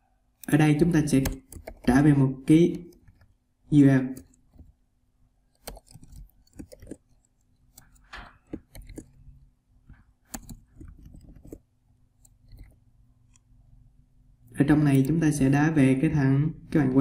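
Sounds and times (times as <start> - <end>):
computer keyboard typing: 0.4 - 4.8, 5.5 - 13.4, 14.4 - 15.6.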